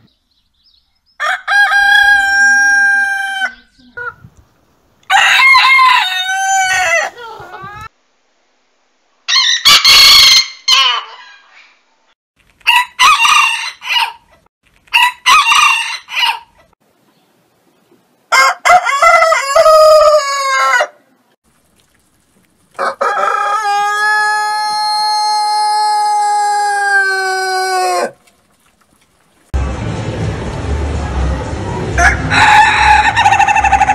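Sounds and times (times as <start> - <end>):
roosters crowing: 1.2 - 4.1, 5.0 - 7.9, 12.7 - 16.7, 18.3 - 21.0, 22.8 - 28.2, 31.9 - 33.9.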